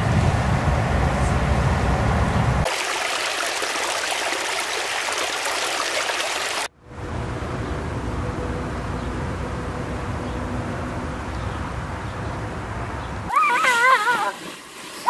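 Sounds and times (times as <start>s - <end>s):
stream splashing over rocks: 2.6s - 6.7s.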